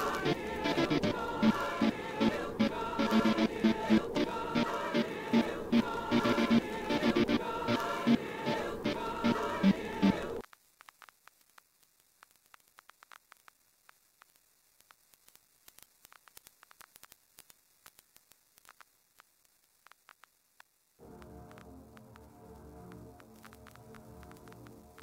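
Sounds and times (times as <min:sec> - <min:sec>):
music: 0:00.0 - 0:10.4, 0:21.0 - 0:25.0
vinyl record crackle and clicks: 0:00.0 - 0:25.0.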